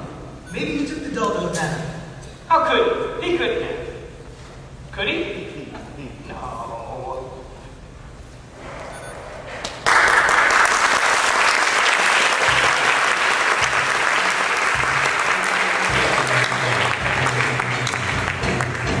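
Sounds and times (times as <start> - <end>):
audience applauding: 9.6 - 19.0
low bass instrumental music: 14.7 - 19.0.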